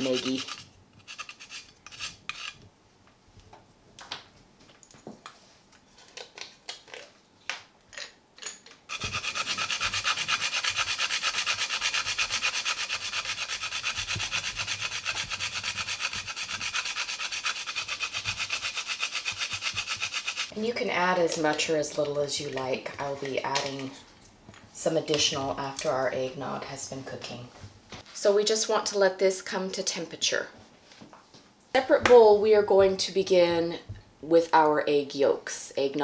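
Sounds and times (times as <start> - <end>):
nutmeg grated on metal grater: 0.0 - 2.6, 8.9 - 20.5.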